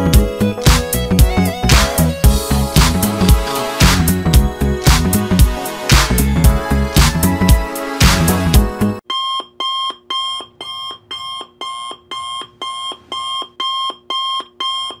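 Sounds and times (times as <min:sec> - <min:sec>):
timer alarm beeping: 0:09.1 - 0:15.0.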